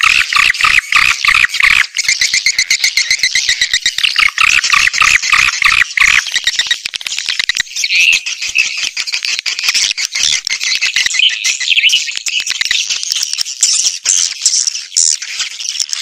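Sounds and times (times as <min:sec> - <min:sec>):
swiftlet calls playback: 0:00.0 - 0:06.8.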